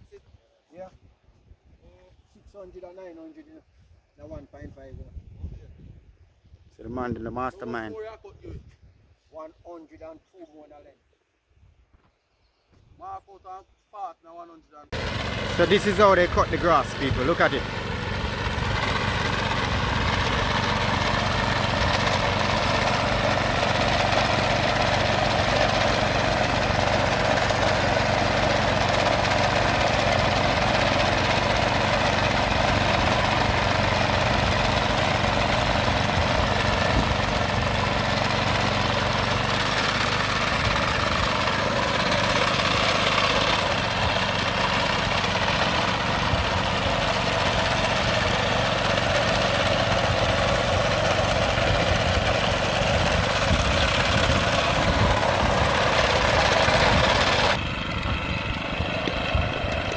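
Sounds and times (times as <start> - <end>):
small petrol engine running: 15.0 - 59.9.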